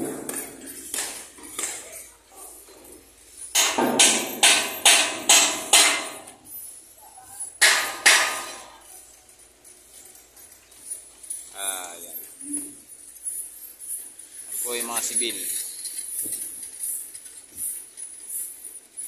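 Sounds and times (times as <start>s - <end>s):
hammer striking steel: 3.5s - 6.5s, 7.6s - 8.8s.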